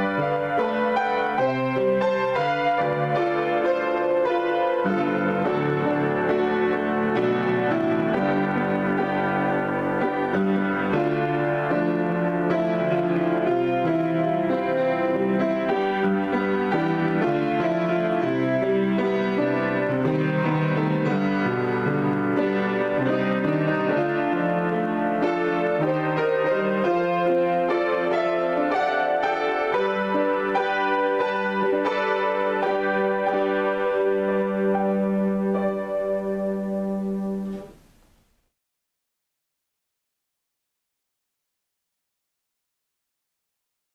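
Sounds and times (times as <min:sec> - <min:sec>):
solo grand piano: 0:00.0 - 0:38.6.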